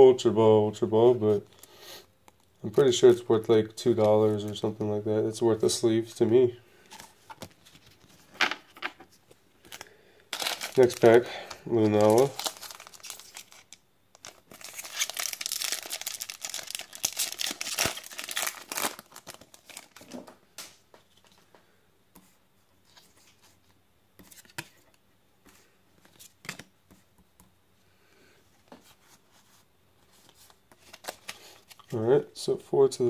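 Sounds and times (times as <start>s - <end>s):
foil wrapper tearing and crinkling: 9.7s - 20.2s.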